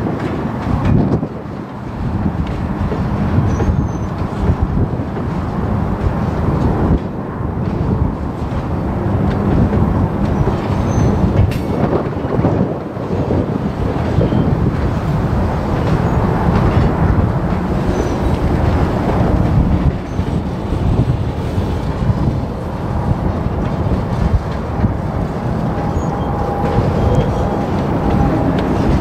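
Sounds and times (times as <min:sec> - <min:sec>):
freight car wheels rumbling on rails: 0:00.0 - 0:29.0
faint thin wheel squeal: 0:10.8 - 0:11.2.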